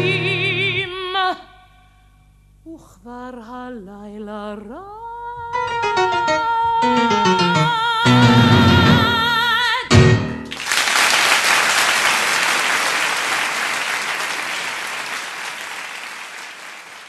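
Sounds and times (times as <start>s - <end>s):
person singing with vibrato: 0.0s - 1.8s, 2.6s - 10.4s
musical accompaniment: 5.4s - 10.6s
audience applauding: 10.5s - 17.0s.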